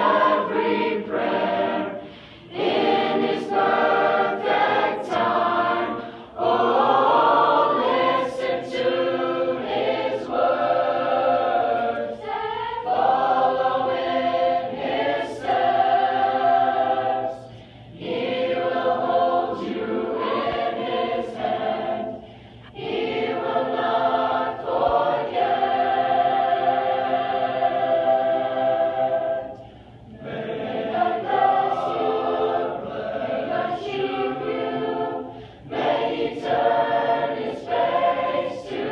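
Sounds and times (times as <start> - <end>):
choir singing in harmony: 0.0 - 38.9.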